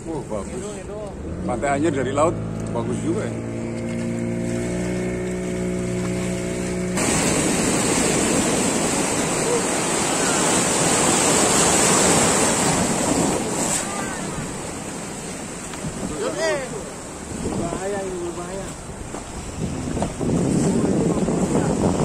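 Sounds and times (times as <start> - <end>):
outboard motor running: 0.0 - 22.0
surf breaking: 0.0 - 22.0
wind on the microphone: 5.8 - 22.0.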